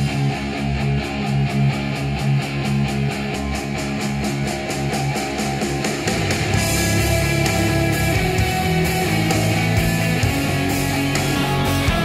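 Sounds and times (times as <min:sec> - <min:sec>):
rock music over speakers: 0:00.0 - 0:12.0.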